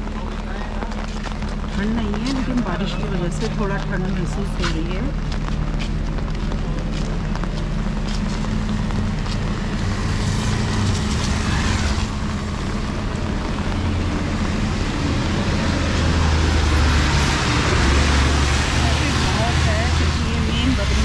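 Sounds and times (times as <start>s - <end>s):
traffic engine hum: 0.0s - 21.0s
truck engine approaching: 0.0s - 21.0s
tyres hissing on wet road: 8.2s - 21.0s.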